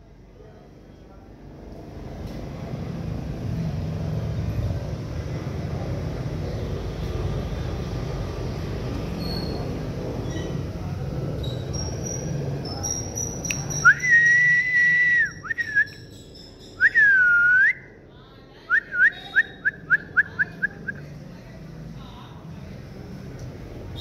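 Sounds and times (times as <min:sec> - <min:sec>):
person whistling: 0:13.8 - 0:15.9, 0:16.8 - 0:17.9.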